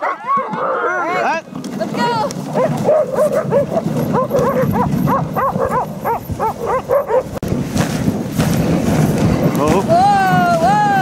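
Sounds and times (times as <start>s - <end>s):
dogs yipping: 0.0s - 1.2s, 2.5s - 7.4s.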